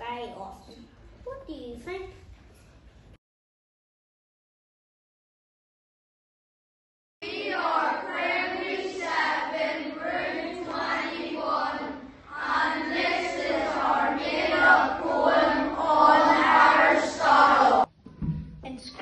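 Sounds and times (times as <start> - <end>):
group of voices singing: 7.2 - 17.9.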